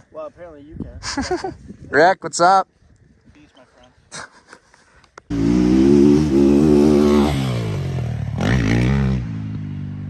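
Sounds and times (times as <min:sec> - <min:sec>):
dirt bike engine revving: 0:05.3 - 0:10.0.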